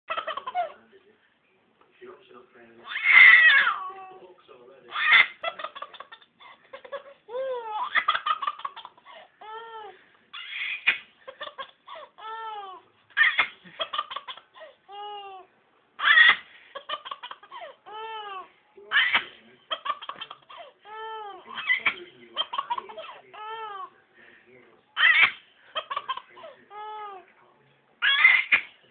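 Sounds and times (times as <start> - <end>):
baby laughing: 0.1 - 0.8, 4.9 - 15.4, 16.0 - 23.9, 25.0 - 27.2, 28.0 - 28.8.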